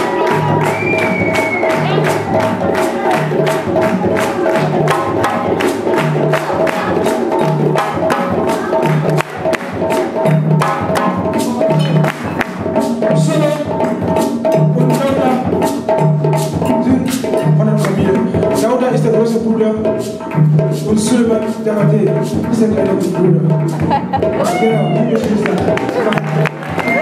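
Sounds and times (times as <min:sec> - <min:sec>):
low bass drum beat: 0:00.0 - 0:19.8
djembes fast hand strokes: 0:00.0 - 0:27.0.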